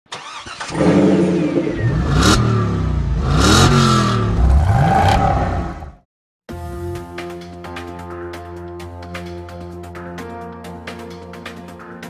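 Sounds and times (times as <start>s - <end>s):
car engine revving: 0.2s - 6.0s.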